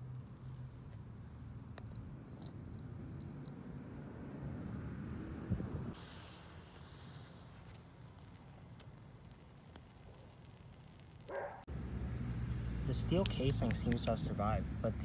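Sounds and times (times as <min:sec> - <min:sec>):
thermite burning with hiss: 0:05.9 - 0:11.7.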